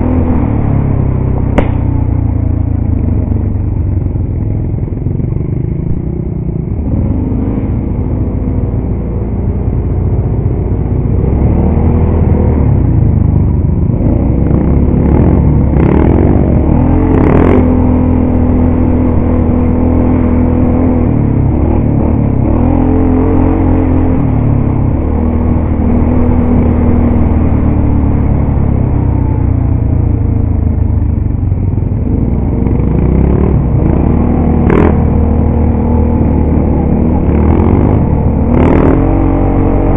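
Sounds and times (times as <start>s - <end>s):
quad engine running under load: 0.0s - 39.9s
sharp knocks: 1.6s - 2.2s.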